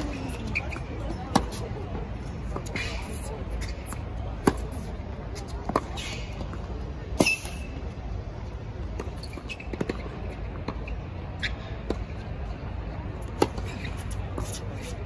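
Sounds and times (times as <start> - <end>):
tennis balls struck by rackets: 0.0 - 7.8.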